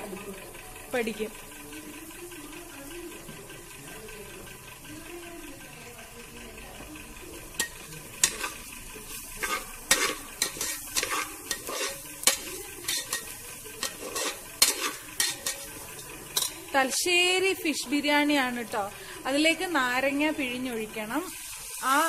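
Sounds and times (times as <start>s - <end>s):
rice sizzling: 0.0s - 22.0s
metal spoon scraping pot: 7.6s - 17.8s.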